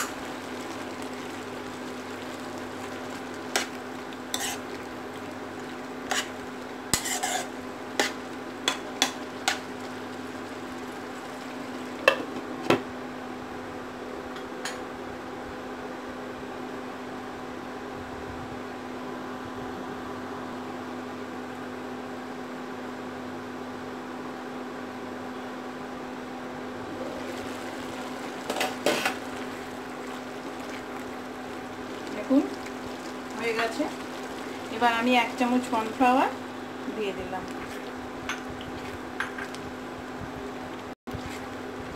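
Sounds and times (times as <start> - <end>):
utensil stirring in a pan: 0.0 - 12.6, 26.9 - 39.6
food simmering: 0.0 - 13.2, 26.9 - 41.9.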